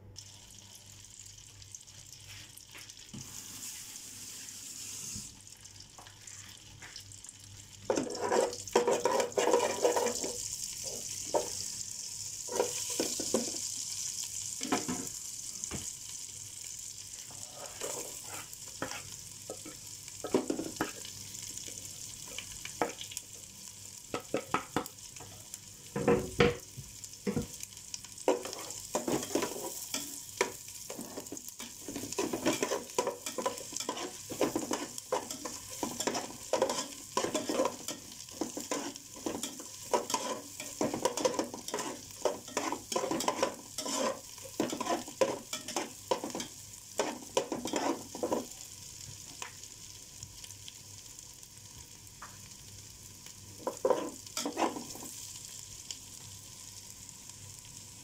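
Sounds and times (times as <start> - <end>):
garlic sizzling in a metal pot: 0.0 - 58.0
metal spoon scraping a pot: 7.9 - 10.3, 32.2 - 46.4, 47.0 - 48.3, 53.8 - 54.8.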